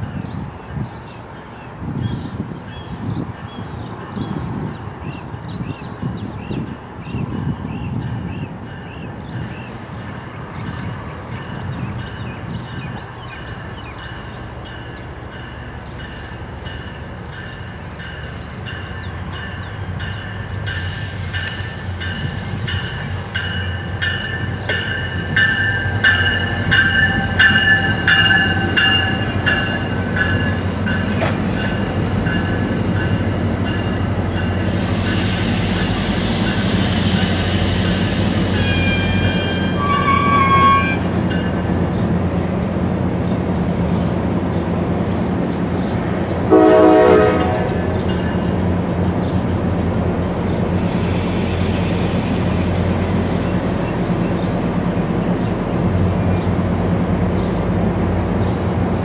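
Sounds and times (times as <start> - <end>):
train rumbling past: 0.0 - 59.0
wheel squeals: 28.3 - 31.6, 35.9 - 41.6
train horn: 35.2 - 41.1, 46.5 - 48.0.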